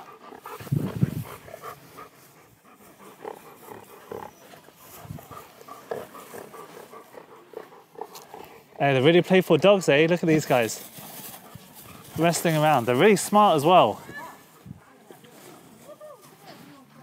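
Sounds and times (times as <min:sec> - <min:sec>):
low dog sound: 0:00.0 - 0:09.0
soft dog noises: 0:00.0 - 0:17.0.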